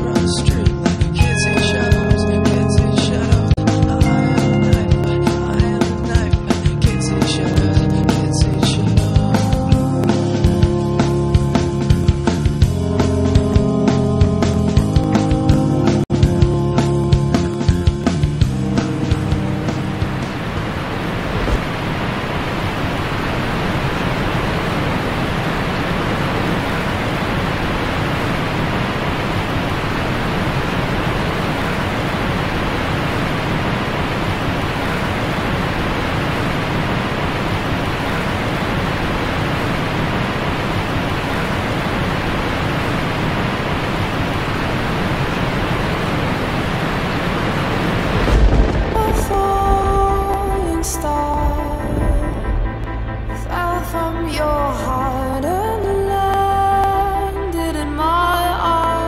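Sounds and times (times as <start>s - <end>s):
ocean surf rushing: 18.5s - 55.8s
low rumble: 44.0s - 59.0s.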